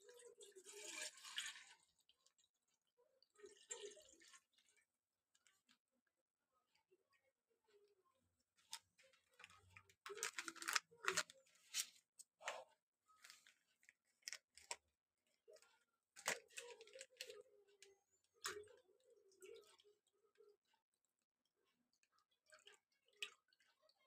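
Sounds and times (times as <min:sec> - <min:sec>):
plastic packet crinkling: 0:09.4 - 0:11.9, 0:16.2 - 0:17.4.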